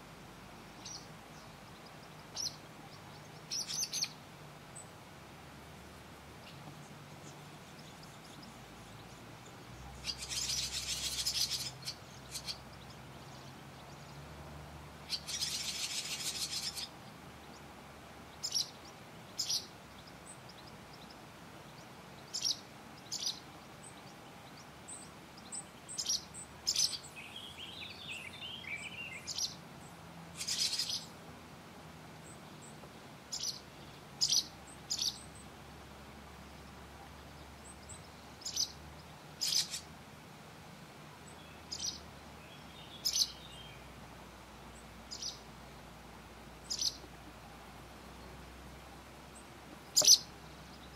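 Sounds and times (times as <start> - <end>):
swallows chirping: 0.7 - 4.2, 6.4 - 14.3, 15.0 - 17.7, 18.3 - 31.1, 32.2 - 35.5, 36.4 - 39.9, 41.2 - 43.9, 44.7 - 45.5, 46.6 - 47.1, 49.3 - 50.9.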